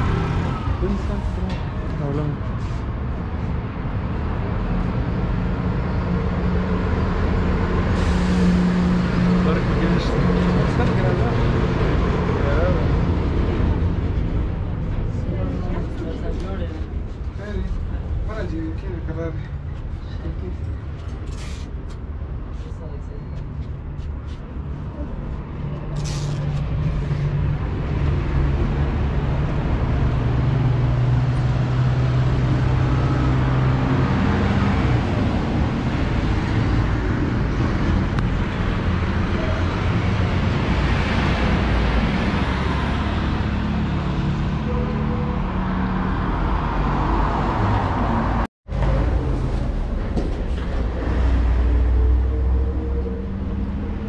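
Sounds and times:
street traffic rumble: 0:00.0 - 0:54.0
vehicle passing by: 0:23.9 - 0:54.0.

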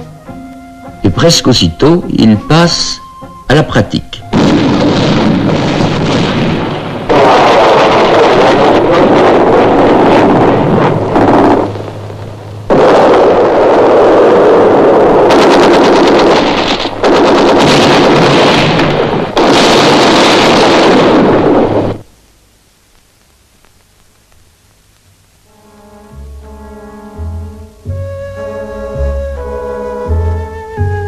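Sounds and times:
gunfire: 0:04.3 - 0:12.0, 0:12.7 - 0:22.0
explosions: 0:04.3 - 0:22.1.

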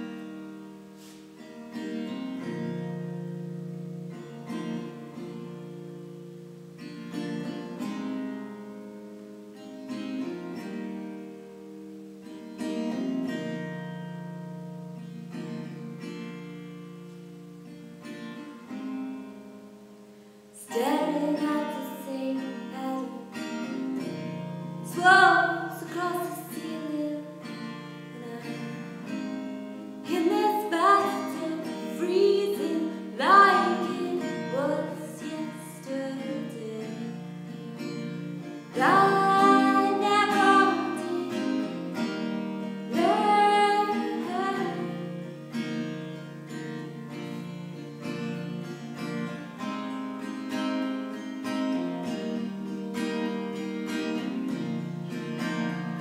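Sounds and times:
strummed acoustic guitar: 0:00.0 - 0:56.0
woman singing: 0:20.6 - 0:24.1, 0:24.8 - 0:29.3, 0:30.0 - 0:37.6, 0:38.7 - 0:45.2.

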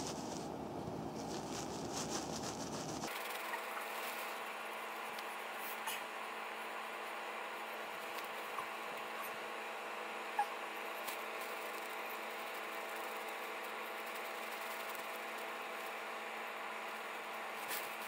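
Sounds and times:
mechanical hum and whir: 0:00.0 - 0:18.0.

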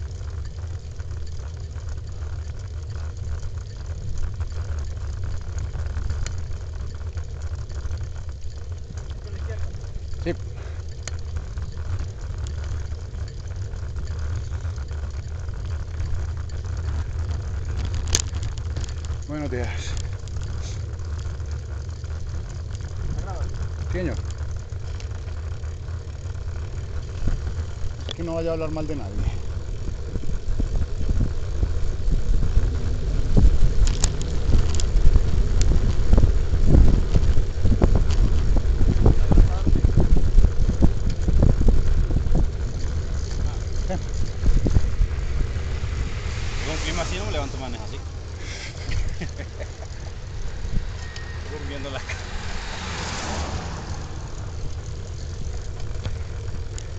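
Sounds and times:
wind buffeting microphone: 0:10.9 - 0:56.9
tyres hissing on wet road: 0:19.3 - 0:20.9, 0:43.0 - 0:56.9.

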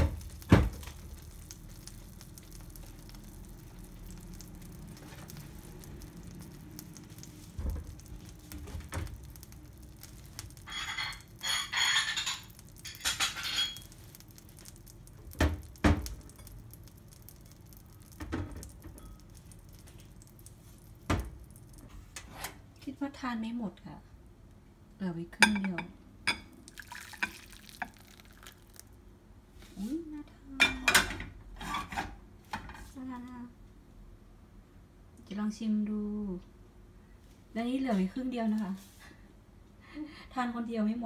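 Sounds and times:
broth simmering: 0:00.0 - 0:22.2, 0:26.3 - 0:29.0.

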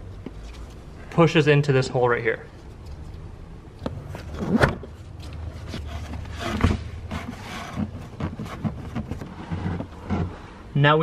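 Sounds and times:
upholstery and carpet rubbing: 0:05.7 - 0:10.4.

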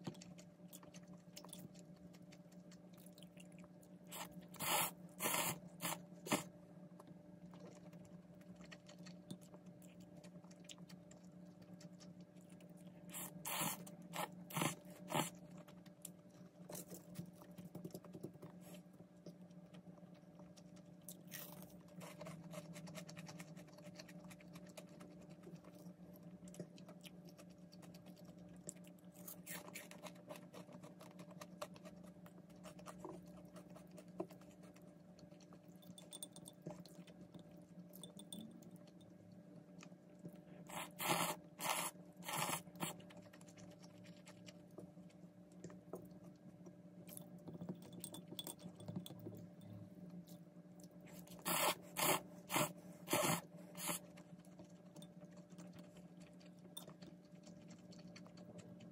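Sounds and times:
chewing: 0:00.0 - 0:58.9
loud noodle slurps: 0:13.1 - 0:15.3, 0:40.7 - 0:42.9, 0:51.4 - 0:54.0.

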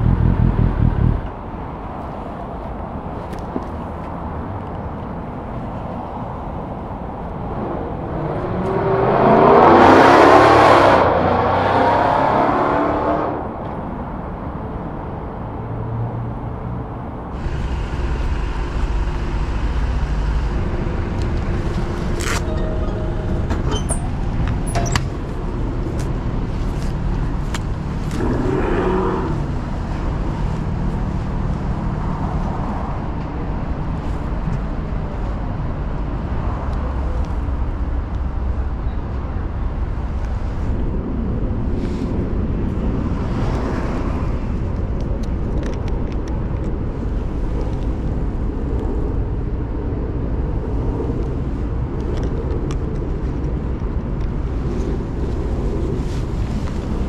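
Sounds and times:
low engine and traffic rumble: 0:00.0 - 0:57.0
vehicle passing: 0:15.5 - 0:44.8.

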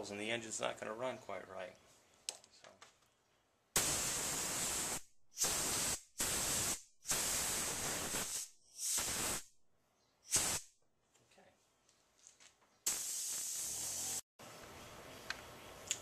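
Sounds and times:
compressed air hissing blasts: 0:03.8 - 0:09.6, 0:10.2 - 0:10.8, 0:12.8 - 0:14.2.

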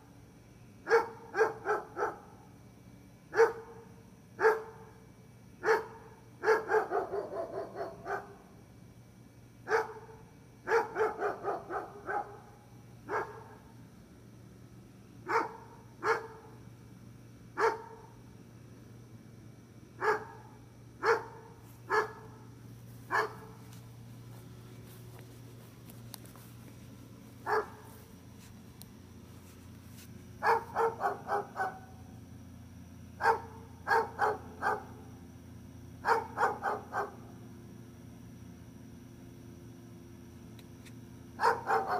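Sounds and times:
dog barking: 0:00.8 - 0:02.4, 0:03.3 - 0:03.8, 0:04.4 - 0:04.9, 0:05.6 - 0:08.4, 0:09.6 - 0:13.6, 0:15.3 - 0:16.6, 0:17.6 - 0:18.1, 0:20.0 - 0:22.3, 0:23.1 - 0:23.6, 0:27.4 - 0:28.0, 0:30.4 - 0:32.0, 0:33.2 - 0:35.0, 0:36.0 - 0:37.3, 0:41.4 - 0:41.9.

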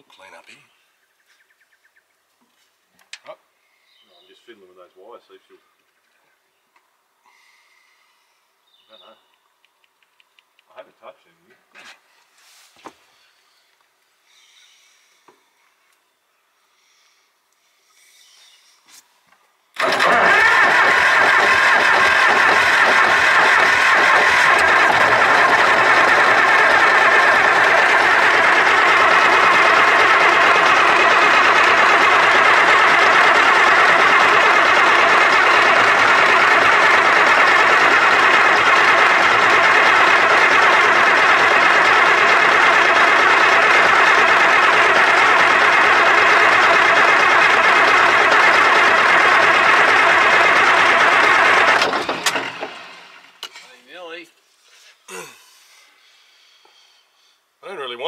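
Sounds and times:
starter motor cranking diesel engine: 0:19.8 - 0:53.5.

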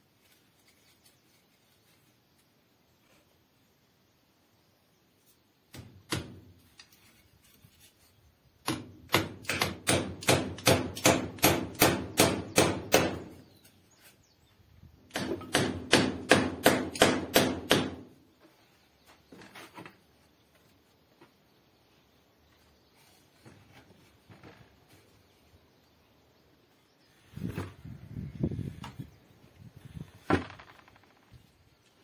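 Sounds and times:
hammer striking wood: 0:05.7 - 0:06.4, 0:08.6 - 0:13.4, 0:15.1 - 0:18.1.

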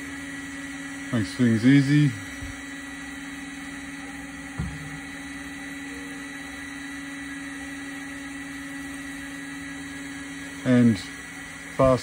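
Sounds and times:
machine hum: 0:00.0 - 0:12.0
short knock: 0:04.6 - 0:05.0.

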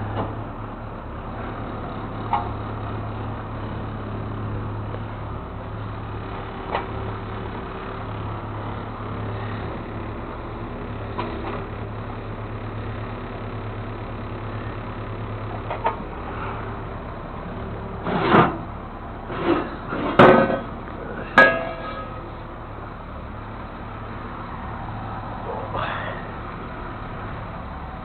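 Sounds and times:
engine idling: 0:00.0 - 0:28.0
metal clanks and knocks: 0:19.3 - 0:22.3.

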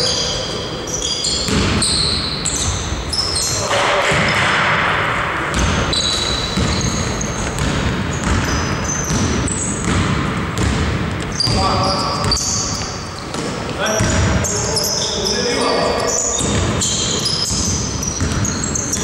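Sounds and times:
sneakers squeaking on gym floor: 0:00.0 - 0:04.7, 0:05.5 - 0:19.0
basketball bouncing: 0:01.4 - 0:02.9, 0:03.6 - 0:14.5, 0:16.3 - 0:19.0.

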